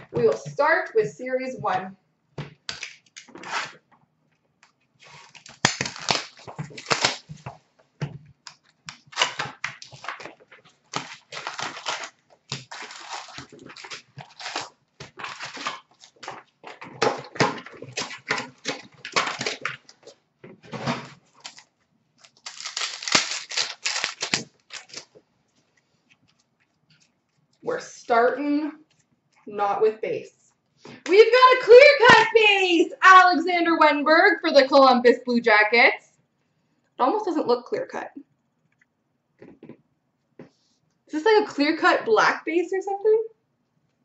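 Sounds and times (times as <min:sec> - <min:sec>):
plastic wrap crinkling: 0:04.9 - 0:20.2, 0:20.8 - 0:27.6.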